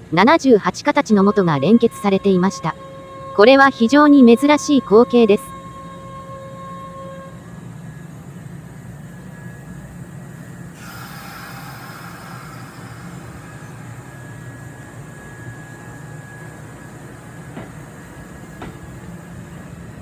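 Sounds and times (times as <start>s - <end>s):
electric train rumbling past: 0.0s - 20.0s
air hiss: 10.7s - 16.2s.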